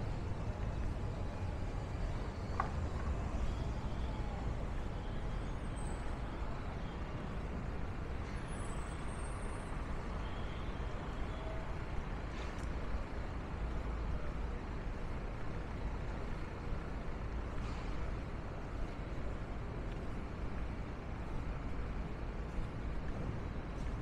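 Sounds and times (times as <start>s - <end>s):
traffic rumble: 0.0s - 24.0s
faint high squeal: 8.2s - 12.6s.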